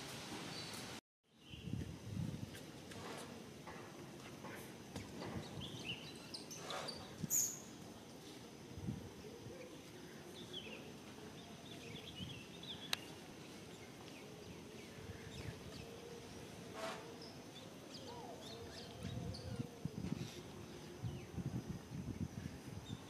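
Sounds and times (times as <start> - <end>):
high insect whine: 14.4 - 23.0.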